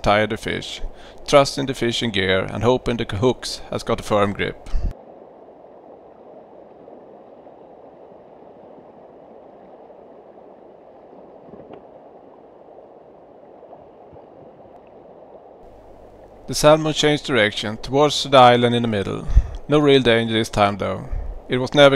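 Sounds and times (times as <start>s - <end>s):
river water rushing and gurgling: 1.1s - 18.6s.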